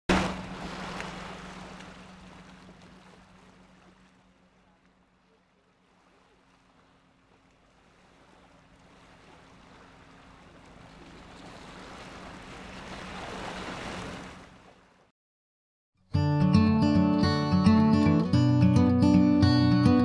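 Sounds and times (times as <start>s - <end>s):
water washing on pebble shore: 0.1s - 4.6s.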